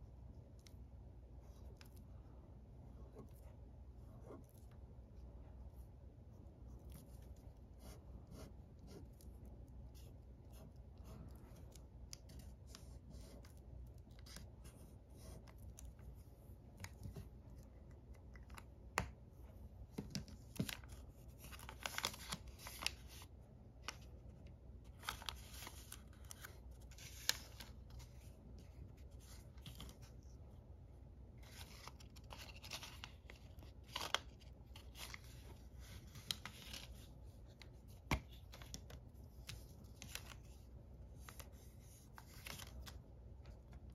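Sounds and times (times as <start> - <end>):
low steady hum: 0.0 - 43.9
paper rustling and crinkling: 20.0 - 30.4, 31.4 - 43.9.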